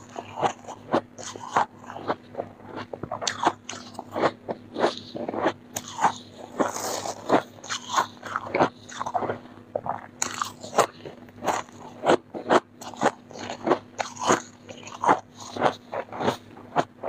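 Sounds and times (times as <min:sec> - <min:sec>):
frost being chewed crunching: 0:00.0 - 0:17.0.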